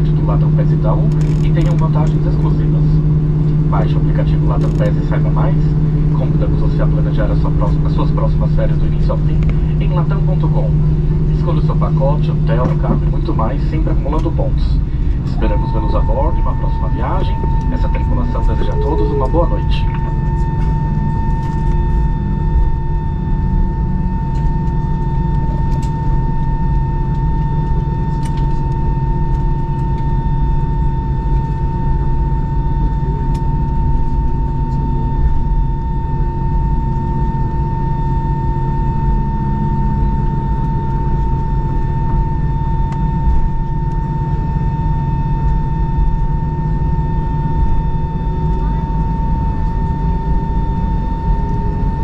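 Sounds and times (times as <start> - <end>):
cabin low rumble: 0.0 - 52.0
jet engines idling: 0.0 - 52.0
steady whine: 0.0 - 52.0.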